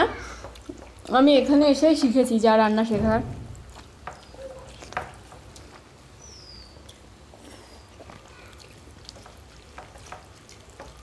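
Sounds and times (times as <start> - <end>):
fingers squishing rice: 3.6 - 11.0.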